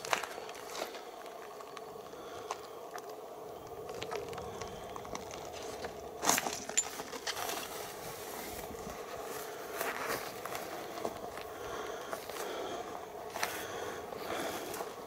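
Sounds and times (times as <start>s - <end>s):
faint steady hum: 0.0s - 15.0s
camera handling rustle in grass: 3.9s - 11.3s.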